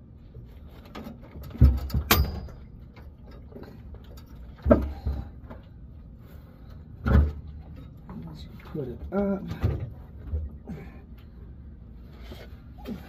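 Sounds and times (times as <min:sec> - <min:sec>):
heavy clunks: 0:04.4 - 0:05.8, 0:06.7 - 0:08.0.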